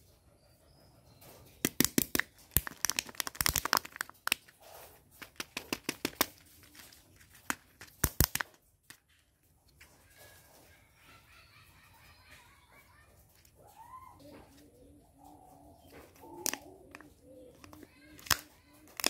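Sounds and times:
plastic shell crackling: 1.6 - 9.2, 16.1 - 19.0.

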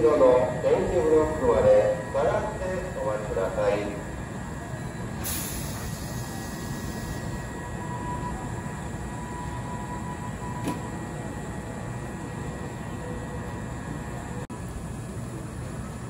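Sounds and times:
train wheels rumbling on rails: 0.0 - 16.0
burst of hiss: 5.2 - 7.3.

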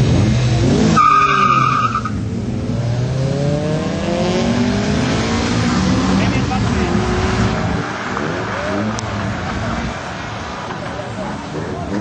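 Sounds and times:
car engine accelerating: 0.0 - 12.0
tyres squealing: 1.0 - 2.2.

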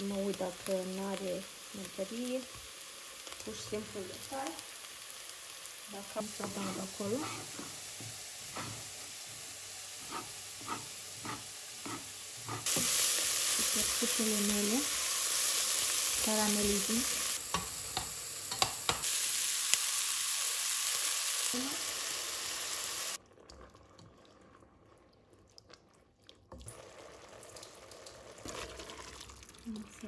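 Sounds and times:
food sizzling in a frying pan: 0.0 - 23.2
utensil tapping pan: 17.5 - 19.0.

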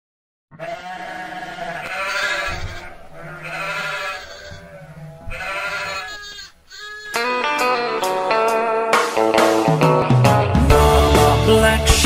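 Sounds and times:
sheep bleating: 0.5 - 8.8.

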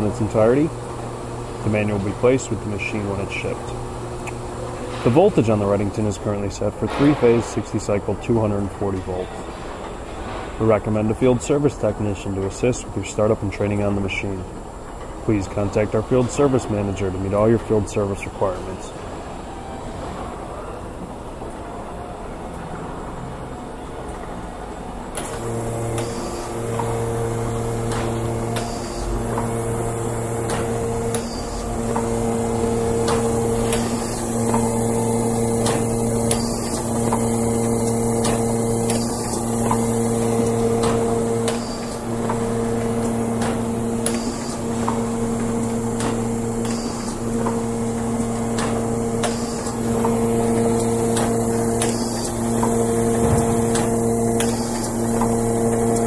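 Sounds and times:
pulsing motor hum: 0.0 - 6.7, 25.2 - 56.0
sharp mechanical clacks: 25.2 - 56.0.

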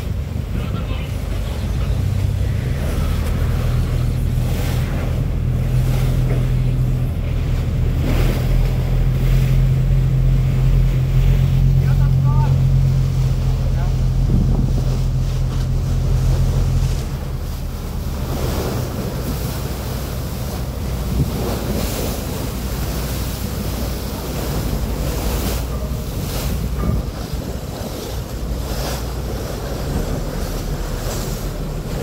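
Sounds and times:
boat engine drone: 0.0 - 32.0
sea water rushing and splashing: 0.0 - 32.0
wind on microphone: 12.6 - 32.0.

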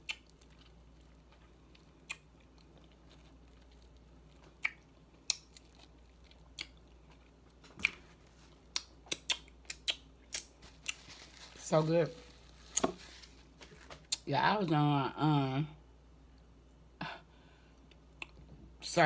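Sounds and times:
wet mouth clicks and smacks: 0.0 - 0.4, 2.0 - 2.3, 4.5 - 5.6, 8.7 - 10.5
person chewing fruit: 0.0 - 11.5.

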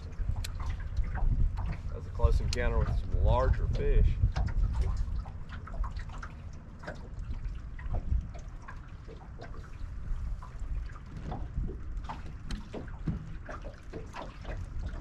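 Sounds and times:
low steady rumble: 0.0 - 15.0
waves lapping against boat hull: 0.0 - 15.0.

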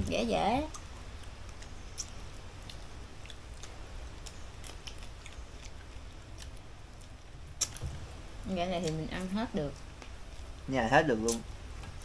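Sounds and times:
chewing: 0.6 - 7.9.

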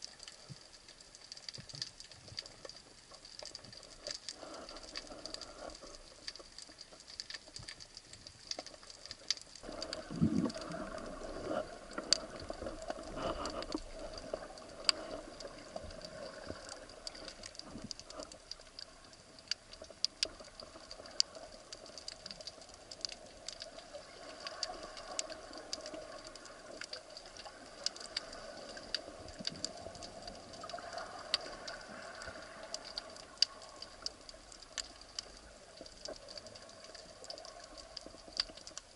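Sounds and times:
underwater clicks and crackles: 0.0 - 38.9.

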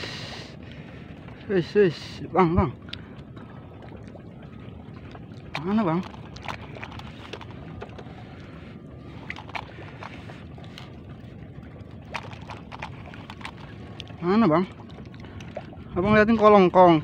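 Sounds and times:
sea water noise: 0.0 - 17.0
wind: 0.0 - 17.0
landing net splashing in water: 12.0 - 13.8.

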